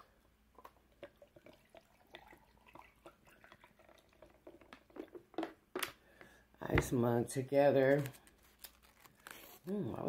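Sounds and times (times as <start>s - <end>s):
drink dripping into mug: 0.6s - 5.3s.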